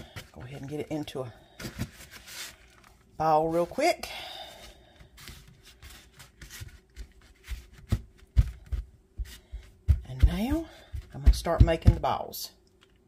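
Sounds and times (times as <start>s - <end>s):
hands rubbing dough: 4.6s - 12.2s
dull thumps of dough patted: 6.4s - 12.3s.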